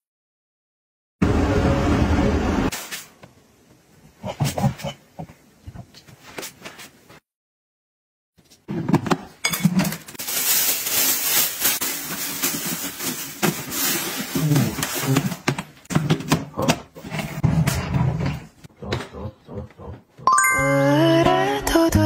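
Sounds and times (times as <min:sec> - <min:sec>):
plastic wrapping crinkling: 0:10.0 - 0:15.1.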